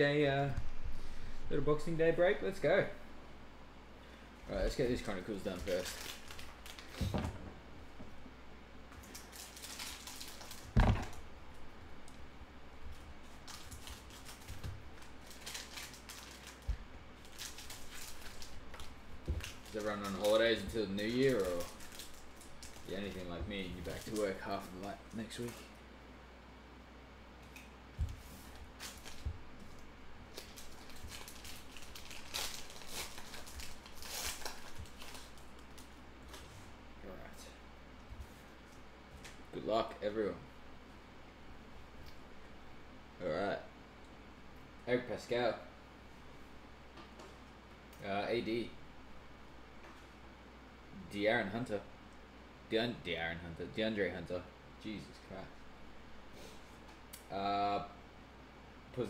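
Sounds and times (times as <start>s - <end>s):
plastic wrappers rustling: 4.5s - 7.1s, 9.0s - 11.2s, 12.9s - 25.8s, 28.5s - 36.7s
loud deep thump: 10.8s - 11.2s.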